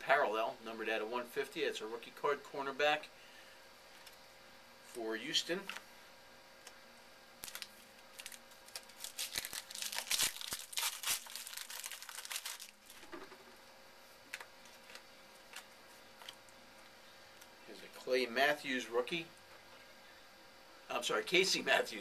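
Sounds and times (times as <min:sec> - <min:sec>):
plastic wrapper crinkling and tearing: 0:07.4 - 0:13.1.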